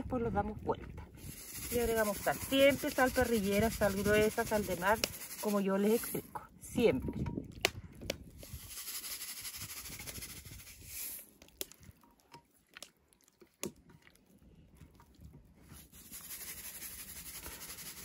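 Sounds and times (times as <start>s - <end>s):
salt shaker grainy hiss: 1.2s - 6.3s, 8.4s - 11.4s, 15.7s - 18.0s.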